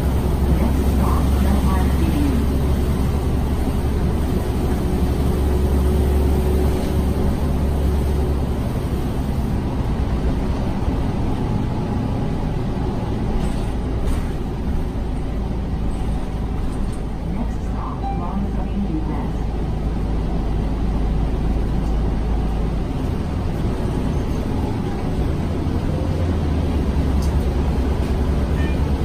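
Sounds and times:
bus engine rumble: 0.0 - 29.0
road and tyre noise: 0.0 - 29.0.

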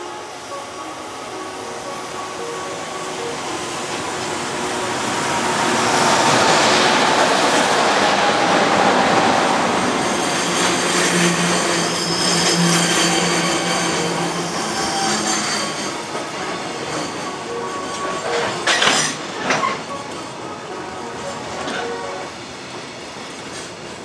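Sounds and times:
electric locomotive passing: 0.0 - 24.0
train wheels rumbling on rail: 0.0 - 24.0
high wheel squeal: 9.8 - 20.1.

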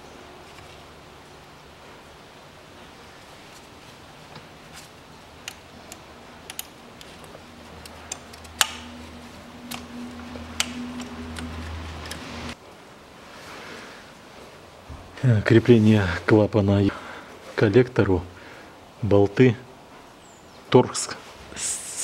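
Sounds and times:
low steady hum: 0.0 - 22.0
clicks and taps of hoses: 5.4 - 8.9, 9.6 - 12.2.

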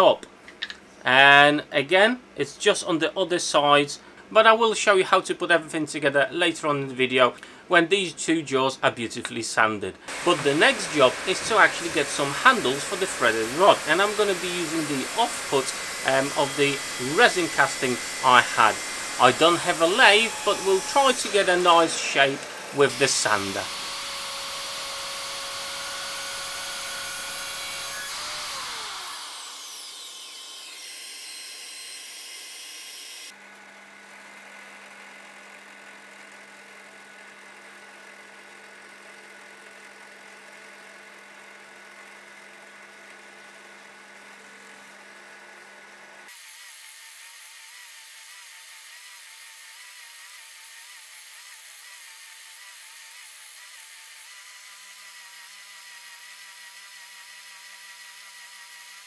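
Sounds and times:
belt sander humming: 10.1 - 33.3
drill press drilling: 10.1 - 33.3, 46.3 - 59.0
mitre saw cutting wood: 10.1 - 33.4, 46.3 - 59.0.

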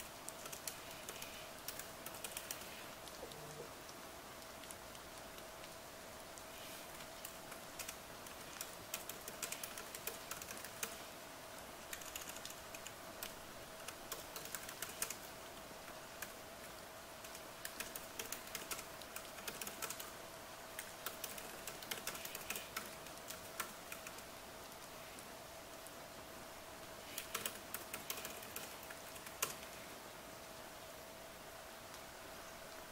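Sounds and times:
rain hiss: 0.0 - 32.9
typing on laptop keyboard: 0.2 - 3.2, 7.2 - 11.0, 11.8 - 15.3, 17.2 - 20.2, 20.8 - 24.3, 27.1 - 29.8.

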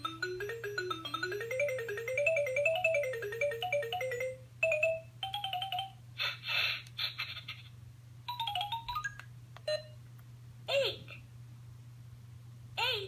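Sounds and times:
toy phone electronic beeping tune: 0.0 - 5.9.

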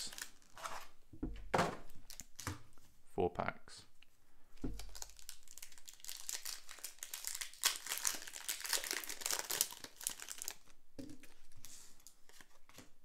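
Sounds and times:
foil wrapper crinkling: 4.8 - 12.5.

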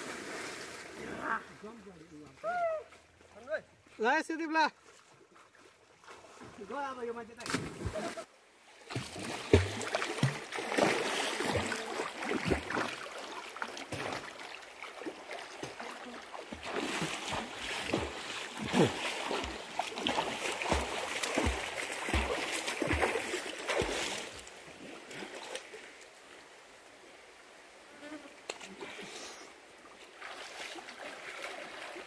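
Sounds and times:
swimmer splashing water: 8.9 - 24.5.

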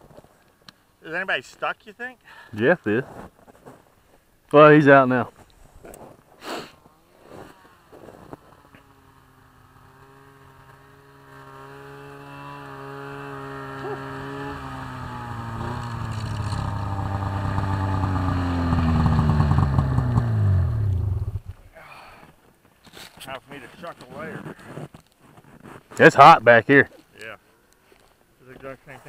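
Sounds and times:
snowmobile engine approaching: 6.8 - 21.8.

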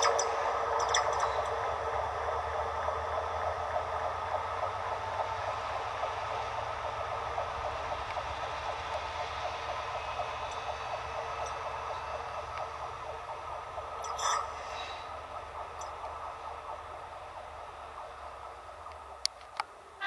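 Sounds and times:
wheels on rails: 0.0 - 20.0.

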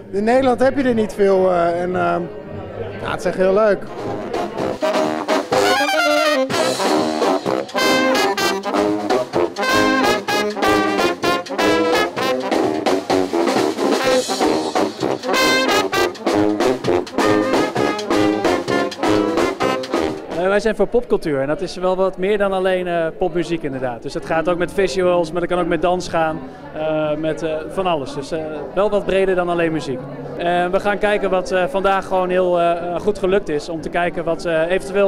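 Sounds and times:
trumpets: 3.9 - 20.5.

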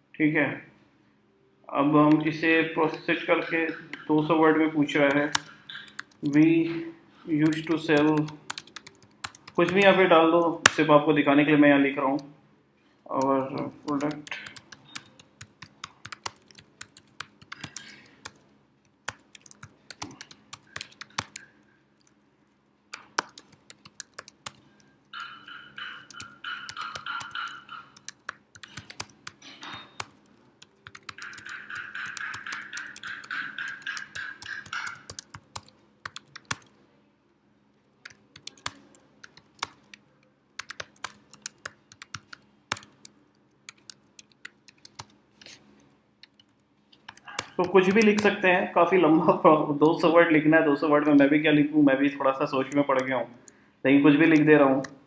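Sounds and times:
fast typing on a keyboard: 2.9 - 6.5, 7.3 - 10.0, 13.2 - 18.4, 19.0 - 22.2, 22.9 - 36.7, 38.0 - 45.2, 46.2 - 48.5, 52.4 - 55.0.

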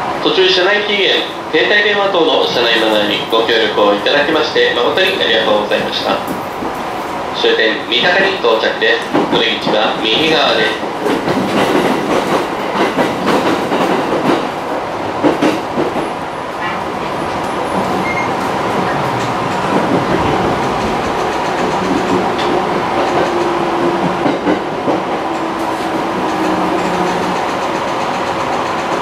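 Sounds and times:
train rumble: 0.0 - 29.0
train wheels clicking over rail joints: 8.9 - 16.2, 17.4 - 29.0.

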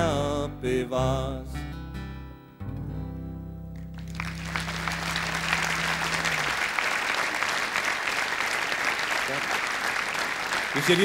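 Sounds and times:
audience applauding: 3.9 - 11.0.

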